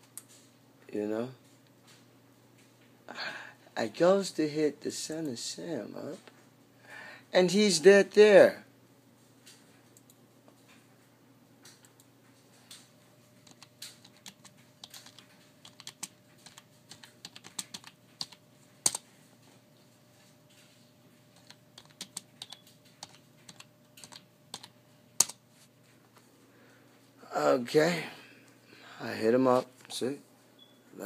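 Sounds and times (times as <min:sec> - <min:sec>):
faint steady hum: 0:00.0 - 0:31.0
keyboard typing: 0:13.4 - 0:19.0, 0:21.3 - 0:25.4.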